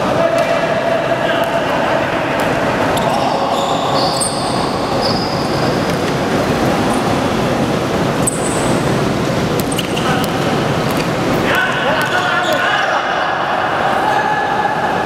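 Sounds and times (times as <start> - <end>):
gym hall noise: 0.0 - 15.0
sneakers squeaking on hardwood: 2.9 - 6.1, 9.6 - 10.4.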